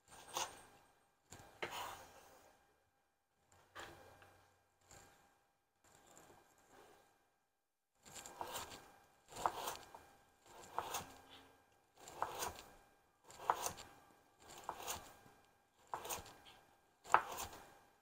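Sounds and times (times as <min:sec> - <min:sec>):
knife slicing carrot on board: 0:08.1 - 0:11.4, 0:12.0 - 0:12.7, 0:13.3 - 0:15.2, 0:15.8 - 0:17.7.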